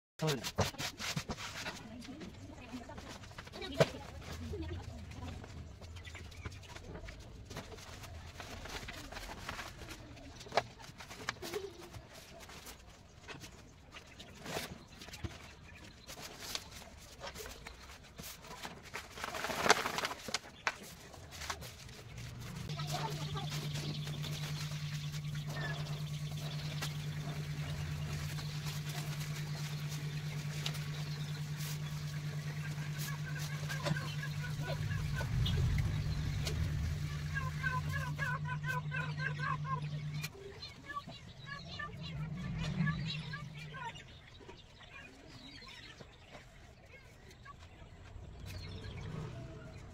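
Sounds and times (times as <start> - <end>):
sacks and paper rustling: 6.6 - 39.4
low pulsing hum: 21.7 - 45.3.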